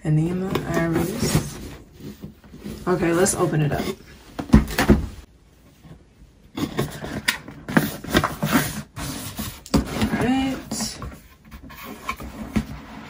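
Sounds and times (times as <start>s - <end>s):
cardboard lid scraping and rustling: 6.5s - 13.0s.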